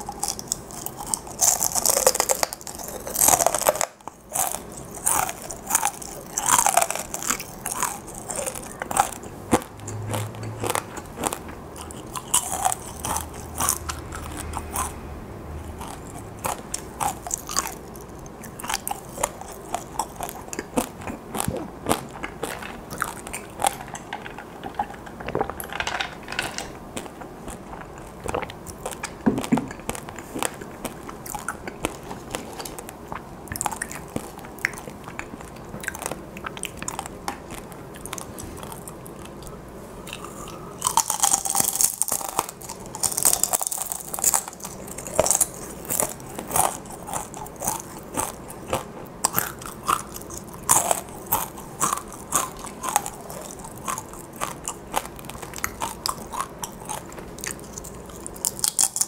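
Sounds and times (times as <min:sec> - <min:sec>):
crunchy food chewing: 0:00.0 - 0:15.0, 0:15.6 - 0:59.0.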